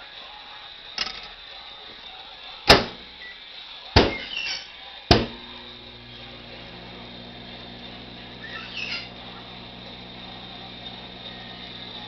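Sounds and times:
microwave door knocks: 2.7 - 3.0, 4.0 - 4.3, 5.1 - 5.4
microwave oven humming: 5.0 - 12.0.

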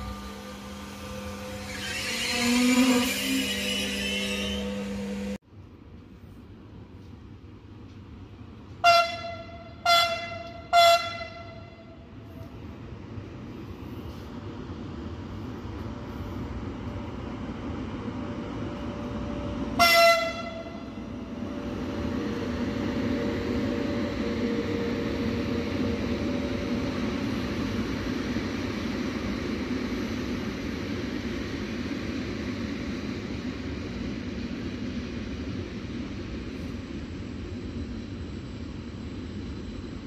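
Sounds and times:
train horn blast: 0.0 - 5.4, 8.8 - 12.1, 19.8 - 21.0.

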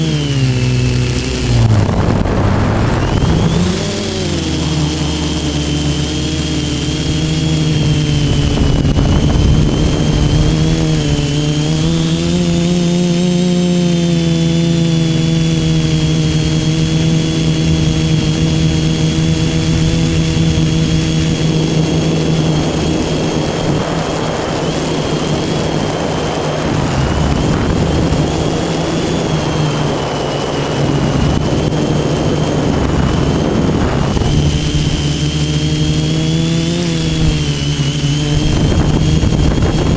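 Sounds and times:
drone propellers buzzing whine: 0.0 - 39.9
rushing noise: 0.2 - 12.6.

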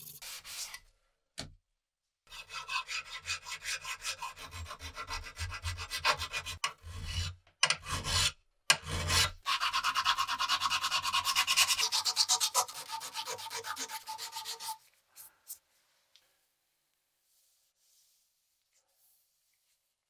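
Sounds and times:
filing steel blade: 0.0 - 0.8, 2.3 - 14.8.

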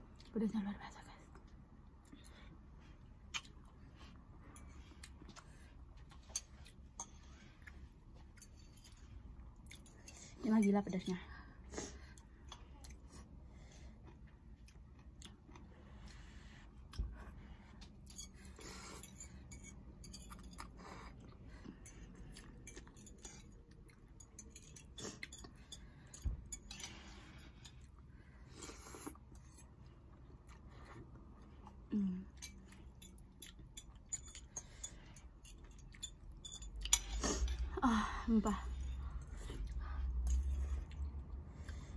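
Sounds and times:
people chewing: 1.3 - 10.4, 11.7 - 41.9
forks clicking on plates: 32.4 - 37.5.

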